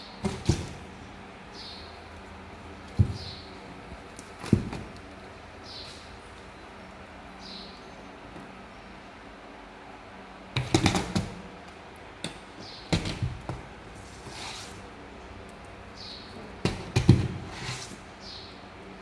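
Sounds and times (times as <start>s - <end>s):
kitten paws scratching cardboard: 12.9s - 15.0s, 16.7s - 18.1s.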